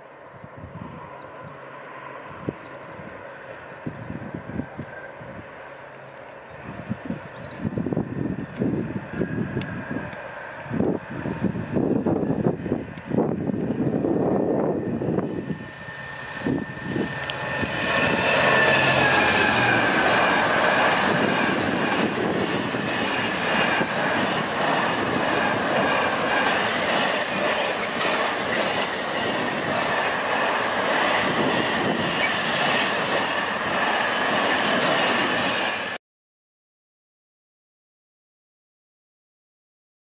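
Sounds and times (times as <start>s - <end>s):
locomotive engine: 7.8s - 36.0s.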